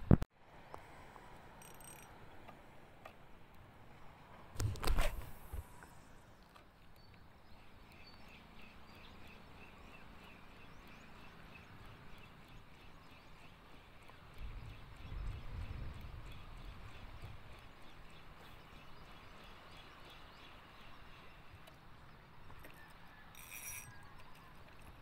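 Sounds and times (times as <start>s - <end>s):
fishing reel ticking: 1.6s - 2.1s, 23.4s - 23.9s.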